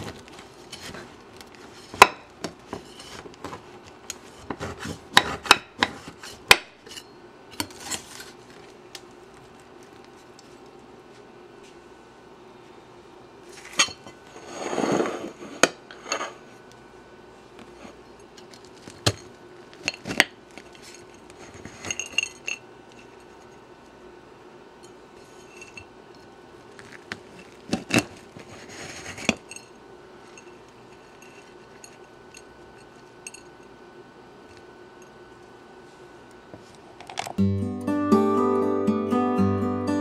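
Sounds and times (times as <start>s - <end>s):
flaky pastry crunching: 26.6s - 29.0s.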